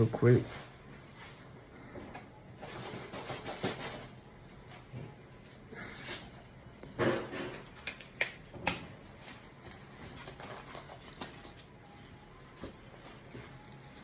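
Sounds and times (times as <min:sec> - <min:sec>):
sharp clicks and snaps: 0:07.8 - 0:08.8.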